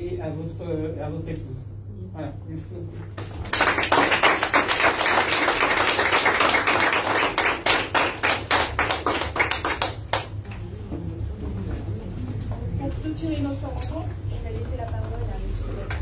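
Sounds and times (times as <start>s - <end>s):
people applauding: 3.2s - 10.5s.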